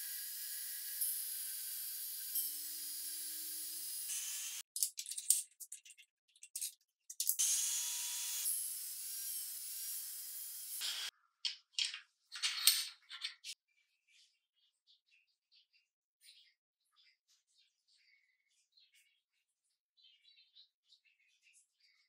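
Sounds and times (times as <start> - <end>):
angle grinder cutting steel: 0.0 - 4.6, 7.4 - 11.1.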